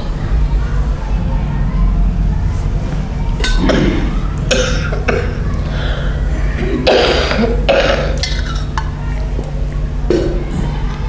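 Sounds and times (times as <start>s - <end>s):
low electrical hum: 0.0s - 11.0s.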